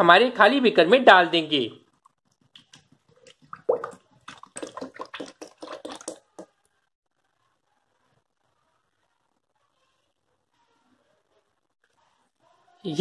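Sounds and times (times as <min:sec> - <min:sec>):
liquid pouring into plastic jug: 0:02.4 - 0:06.6.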